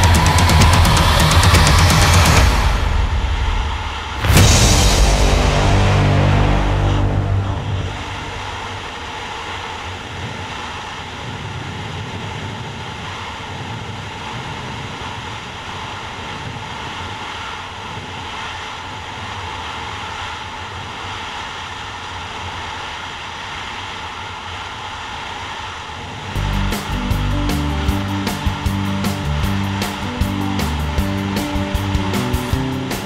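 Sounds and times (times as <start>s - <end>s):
motorcycle engine: 0.0s - 2.9s, 26.4s - 33.0s
road noise: 0.0s - 11.2s, 22.8s - 33.0s.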